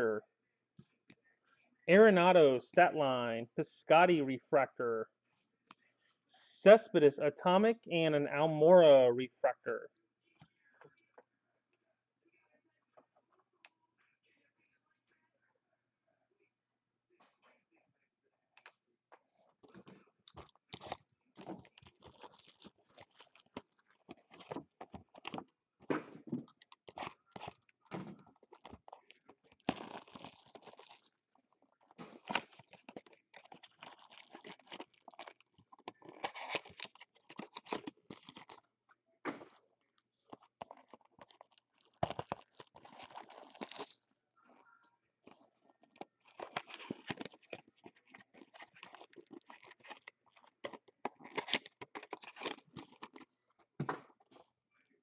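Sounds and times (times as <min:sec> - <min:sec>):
foil wrappers crinkling and tearing: 0:20.4 - 0:25.4, 0:28.5 - 0:31.1, 0:32.2 - 0:38.6, 0:40.3 - 0:44.0, 0:45.8 - 0:53.3.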